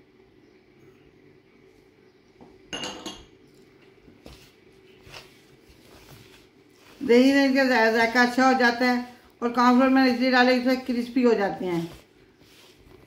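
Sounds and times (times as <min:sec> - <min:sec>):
dishware clatter: 0:02.7 - 0:03.3.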